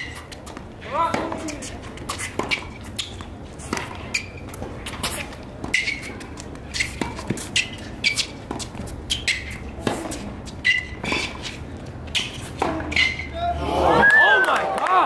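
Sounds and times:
ball bouncing: 0.0 - 11.5
racquets striking tennis ball: 0.0 - 13.3.

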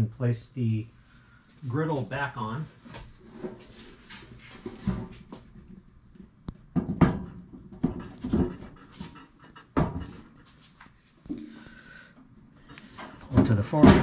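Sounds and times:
person breathing heavily: 11.3 - 13.0.

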